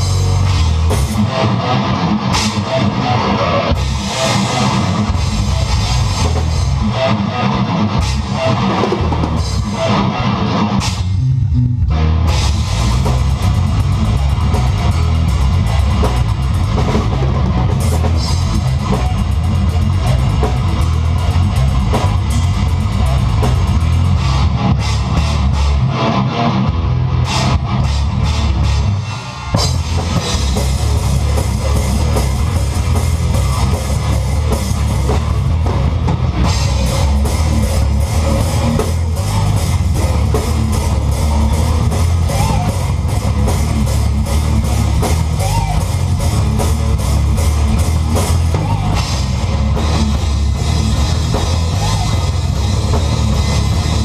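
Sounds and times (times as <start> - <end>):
death metal band playing live: 0.0 - 54.0.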